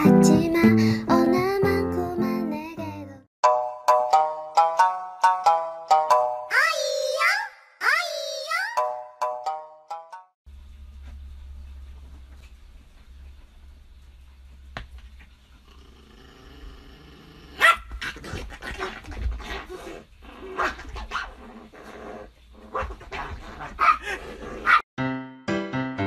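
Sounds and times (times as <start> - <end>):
music: 0.0 - 6.5, 25.0 - 26.0
small dog growling: 15.6 - 24.8
small dog barking: 17.6 - 18.0, 23.8 - 24.8.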